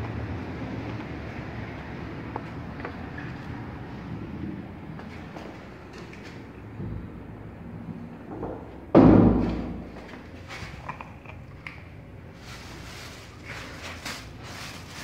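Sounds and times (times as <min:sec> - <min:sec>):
loud thump: 0:08.4 - 0:09.9
plastic bag crinkling: 0:12.2 - 0:15.0.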